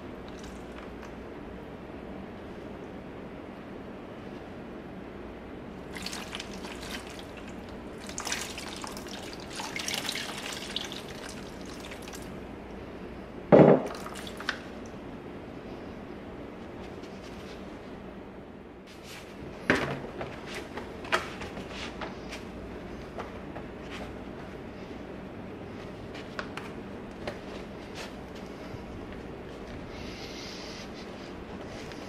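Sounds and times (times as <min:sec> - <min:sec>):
water pouring and splashing: 0:05.8 - 0:12.4, 0:13.8 - 0:14.6
knocks: 0:13.5 - 0:13.9.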